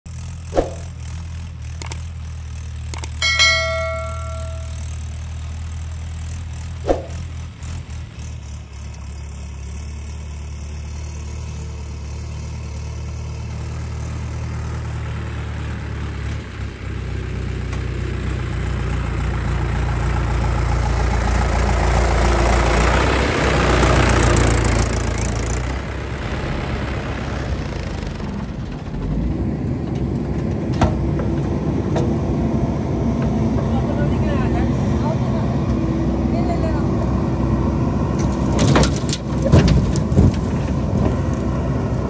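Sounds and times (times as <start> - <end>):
diesel tractor engine idling: 7.4 - 38.6.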